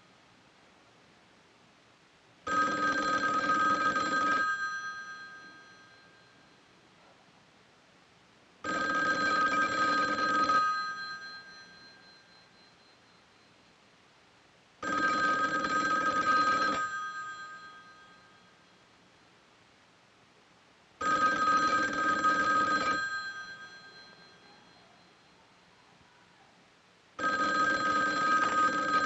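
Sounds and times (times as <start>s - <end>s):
telephone bell ringing: 2.5s - 6.8s, 8.6s - 13.6s, 14.8s - 18.8s, 21.0s - 25.5s, 27.2s - 29.0s.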